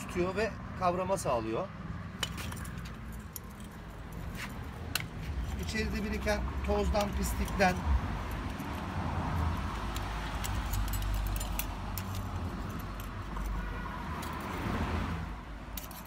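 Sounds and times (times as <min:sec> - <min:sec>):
screwdriver scraping metal: 0:09.7 - 0:13.6, 0:15.8 - 0:16.0.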